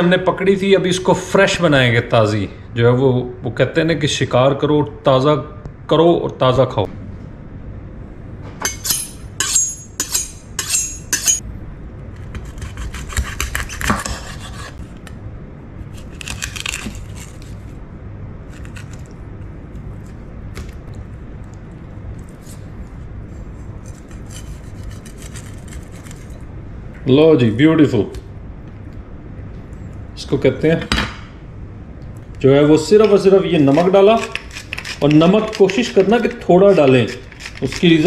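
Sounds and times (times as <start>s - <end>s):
knife honing strokes: 8.7s - 11.4s, 22.3s - 26.4s, 33.0s - 37.9s
knife cutting fish on board: 12.4s - 14.8s.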